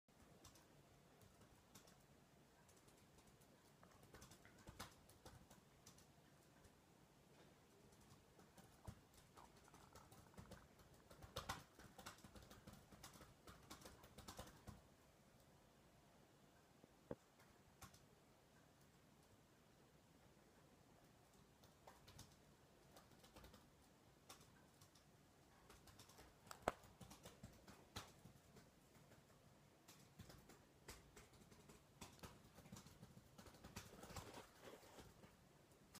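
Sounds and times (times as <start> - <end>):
faint clicks: 0.1 - 15.6, 16.6 - 19.4, 21.0 - 36.0
light clicks and scrapes on phone: 33.5 - 35.3.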